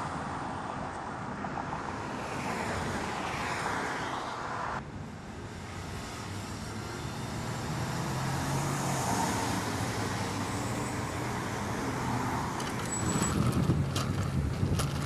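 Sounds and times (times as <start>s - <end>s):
traffic passing: 0.0s - 15.0s
tyre and road noise: 0.0s - 15.0s.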